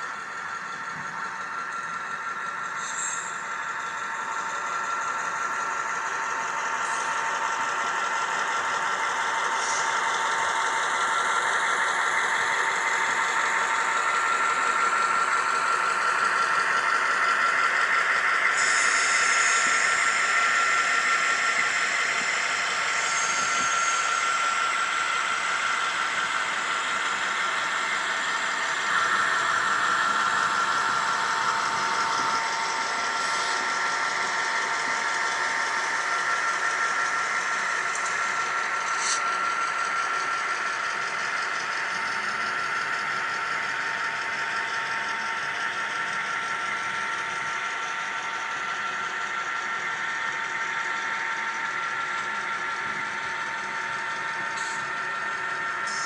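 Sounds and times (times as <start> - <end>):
model train whirring: 0.0 - 56.0.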